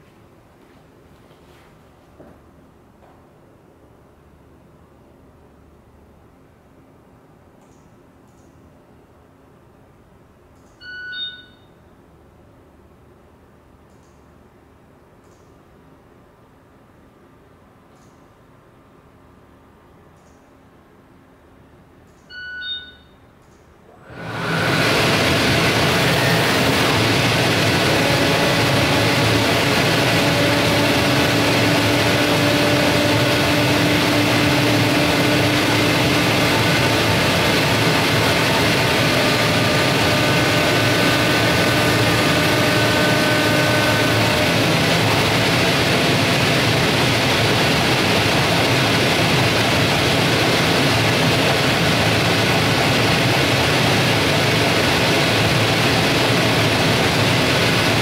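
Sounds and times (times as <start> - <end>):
vacuum blower noise: 23.9 - 58.0.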